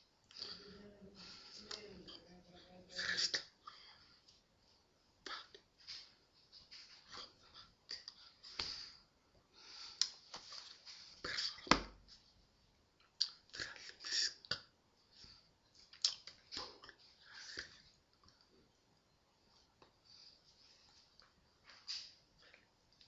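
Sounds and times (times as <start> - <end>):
breathing: 0.3 - 1.8, 7.1 - 10.2.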